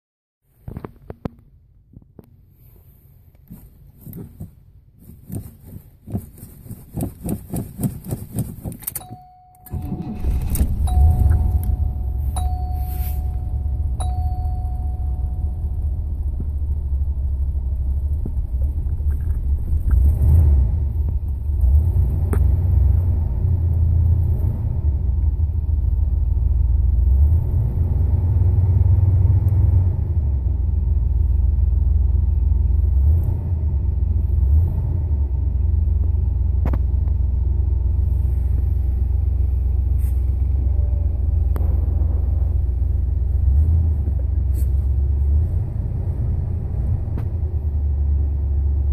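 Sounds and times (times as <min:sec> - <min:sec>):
car engine idling: 0:07.1 - 0:27.3, 0:35.4 - 0:48.9
chime dinging: 0:09.0 - 0:16.3.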